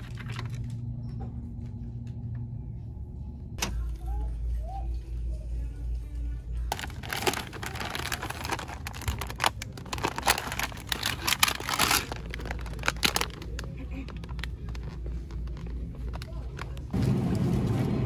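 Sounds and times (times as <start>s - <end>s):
packaging crinkling and rustling: 0.0s - 0.7s, 6.7s - 17.0s
steady low hum: 0.0s - 18.0s.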